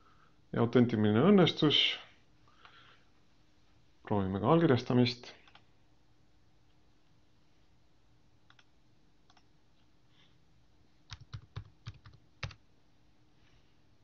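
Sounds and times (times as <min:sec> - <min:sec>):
computer keyboard keystrokes: 0:11.1 - 0:12.6.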